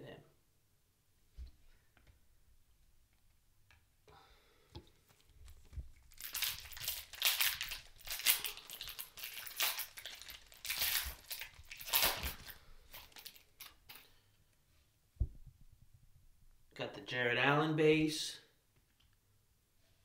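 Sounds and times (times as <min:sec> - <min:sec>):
foil wrapper tearing and crinkling: 0:06.0 - 0:14.1.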